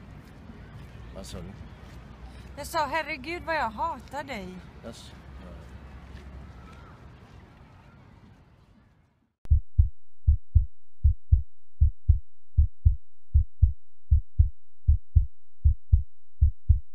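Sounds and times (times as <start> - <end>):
faint outdoor background: 0.0 - 16.8
heartbeat thumps: 9.5 - 16.9.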